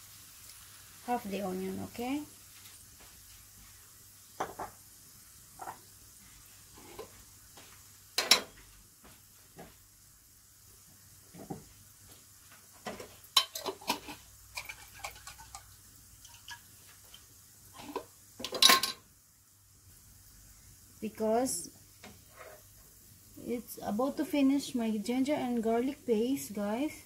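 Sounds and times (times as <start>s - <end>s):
onions sizzling in a wok: 0.0s - 27.0s
spatula knocking and scraping pan: 12.8s - 15.6s.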